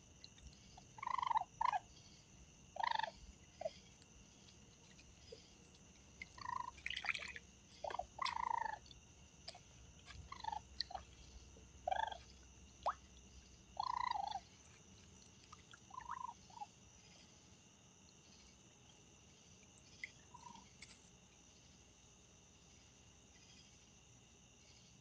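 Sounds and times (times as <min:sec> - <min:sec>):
insects chirring: 0:00.0 - 0:25.0
animals splashing in water: 0:05.2 - 0:16.4.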